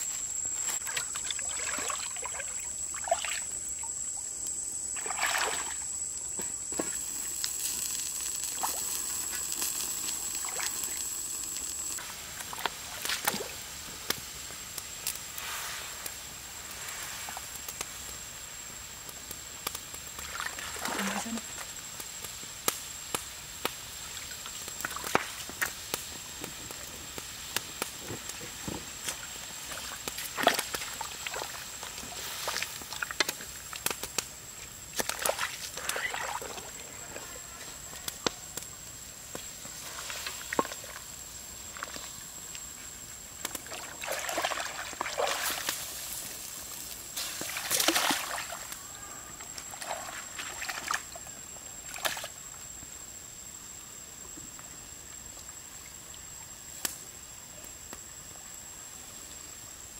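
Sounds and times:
water sloshing in a wok: 0.6 - 4.0, 4.9 - 5.9, 28.2 - 33.8, 34.5 - 37.2, 39.7 - 42.1, 43.5 - 48.8, 49.4 - 52.5.

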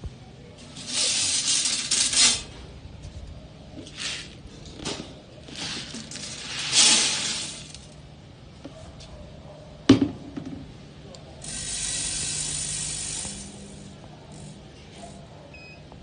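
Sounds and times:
granules rattling through machine: 0.6 - 2.6, 5.5 - 8.0
granules pouring into hopper: 0.8 - 2.5, 5.5 - 8.0.

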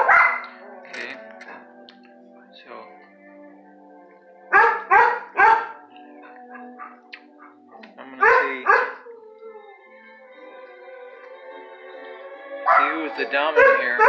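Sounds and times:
dog barking: 0.0 - 0.5, 4.5 - 5.8, 6.5 - 7.6, 8.2 - 9.1, 12.7 - 14.0.

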